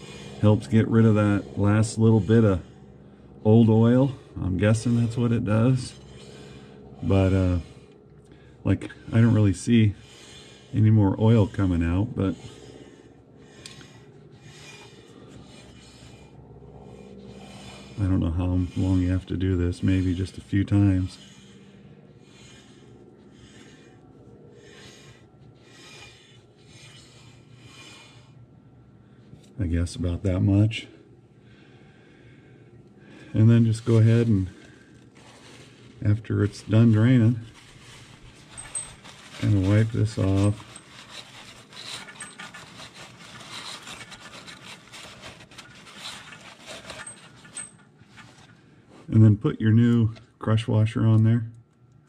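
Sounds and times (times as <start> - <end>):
paper towel wiping metal: 16.9 - 21.6, 33.3 - 48.5
motorcycle wheel rubbing swishes: 35.2 - 47.8.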